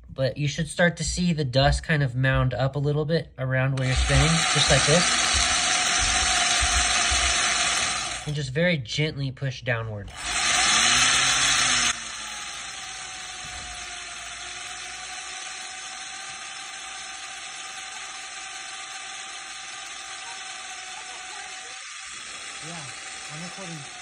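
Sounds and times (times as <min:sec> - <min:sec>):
drill grinding into ceramic: 0:03.7 - 0:08.5, 0:10.0 - 0:24.0.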